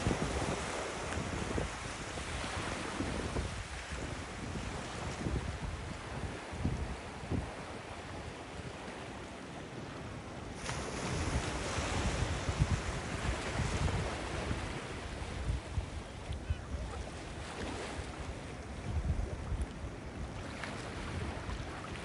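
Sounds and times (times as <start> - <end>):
wind buffeting microphone: 0.0 - 8.8, 10.7 - 22.0
ocean surf breaking: 10.6 - 15.6.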